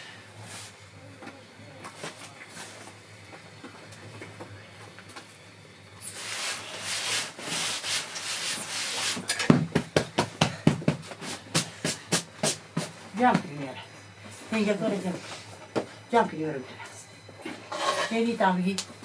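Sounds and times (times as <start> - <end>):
hands patting cushion: 9.1 - 12.9.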